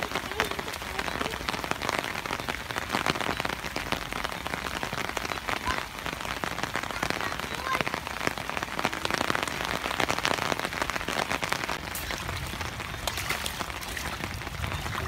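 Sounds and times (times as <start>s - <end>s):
rain on wet ground: 0.0s - 15.0s.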